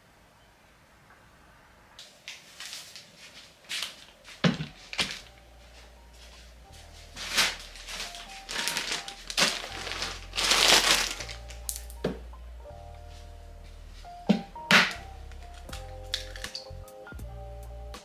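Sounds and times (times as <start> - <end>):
plastic bags crinkling: 2.2 - 5.4, 7.0 - 11.9
soft background music: 3.2 - 18.0.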